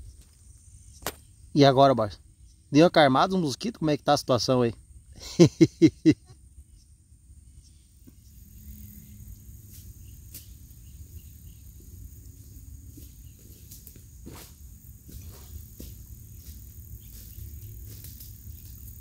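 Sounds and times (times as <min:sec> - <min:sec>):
insects shrilling: 0:07.4 - 0:19.0.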